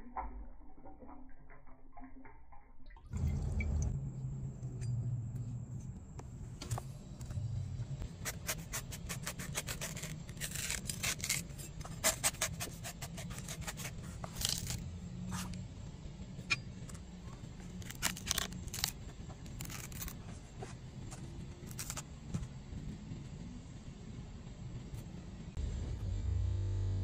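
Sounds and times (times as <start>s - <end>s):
low steady hum: 0.0s - 27.0s
knife cutting coconut husk: 8.1s - 15.6s, 17.6s - 22.1s.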